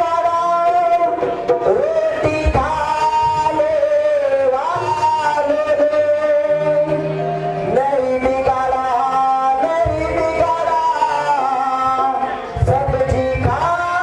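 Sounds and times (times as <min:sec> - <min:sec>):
sung melody with accompaniment: 0:00.0 - 0:14.0.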